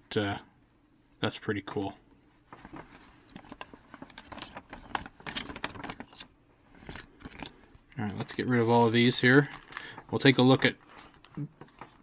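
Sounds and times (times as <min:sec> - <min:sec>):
paper rustling and crinkling: 0:02.5 - 0:07.7, 0:08.3 - 0:12.0.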